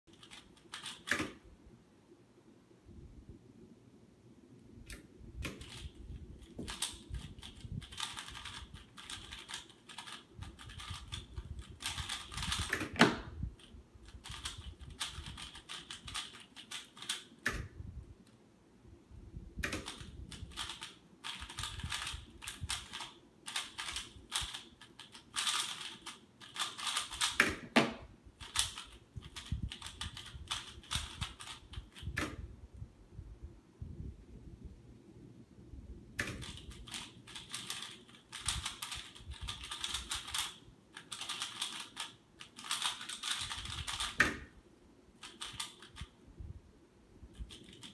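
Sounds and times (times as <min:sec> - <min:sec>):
plastic puzzle cube clicking: 0:00.1 - 0:01.4, 0:04.9 - 0:17.7, 0:19.6 - 0:27.8, 0:28.4 - 0:32.4, 0:36.2 - 0:44.6, 0:45.2 - 0:46.2, 0:47.4 - 0:47.9.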